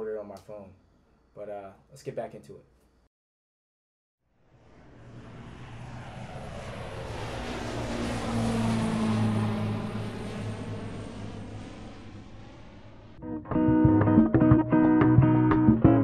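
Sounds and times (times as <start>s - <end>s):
airplane passing overhead: 4.3s - 13.4s.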